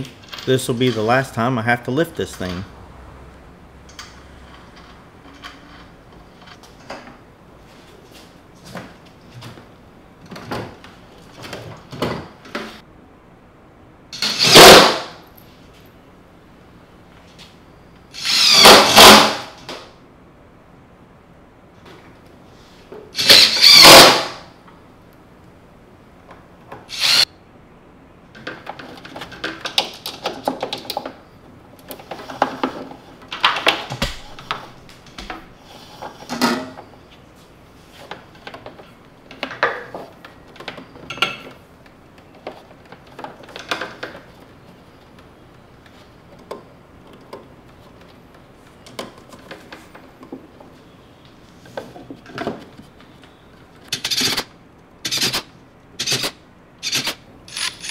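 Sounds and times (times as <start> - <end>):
knocks and rustling of parts: 3.8 - 12.8, 28.3 - 37.2, 37.9 - 56.3
cordless drill driving a bolt: 14.2 - 15.0, 18.1 - 19.4, 23.2 - 24.4, 26.9 - 27.3, 56.0 - 57.9.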